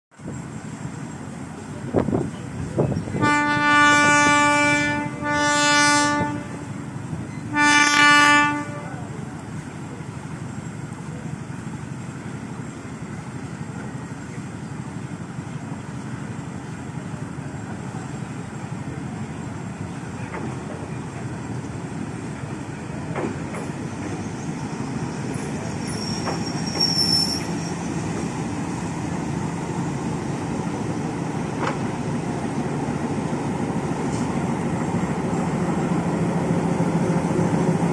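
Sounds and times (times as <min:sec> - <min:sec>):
locomotive horn blasts: 0:03.2 - 0:06.8, 0:07.5 - 0:09.0
locomotive engine running: 0:08.7 - 0:37.9
wheel or brake squeal: 0:24.2 - 0:28.1.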